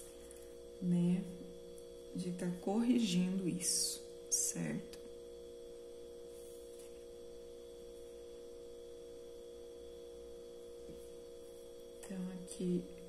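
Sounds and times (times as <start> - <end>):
faint high whine: 0.0 - 13.0
steady room hum: 0.0 - 13.0.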